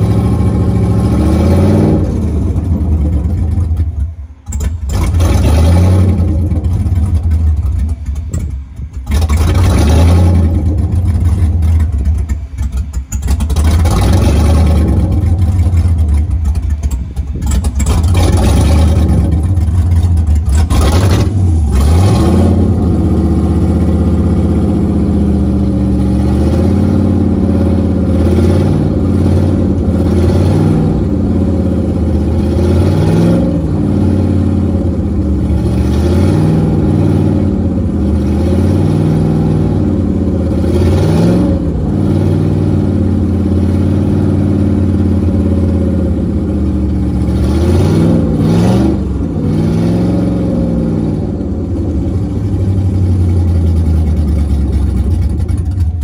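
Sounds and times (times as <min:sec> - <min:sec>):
boat engine idling and revving: 0:00.0 - 0:56.0.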